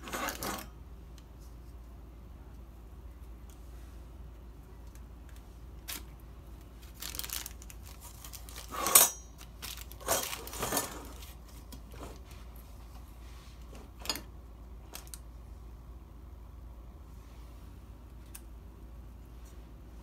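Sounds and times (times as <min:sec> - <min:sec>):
utensils clattering: 0:08.5 - 0:11.2.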